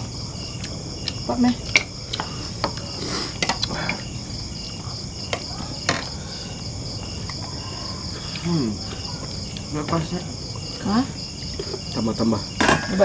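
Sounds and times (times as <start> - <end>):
night insects chirring: 0.0 - 13.0
plates and cutlery clicking: 3.4 - 4.0.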